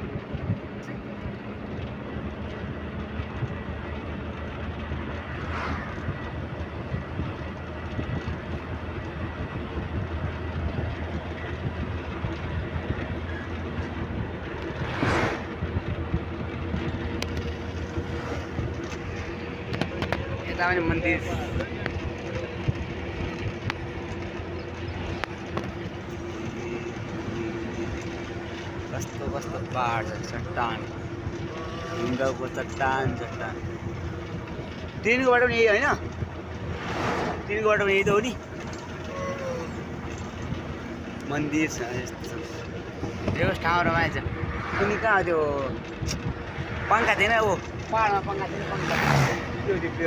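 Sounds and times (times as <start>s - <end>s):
vehicle rumble and rattle: 0.0s - 50.0s
brief whoosh: 14.8s - 15.5s.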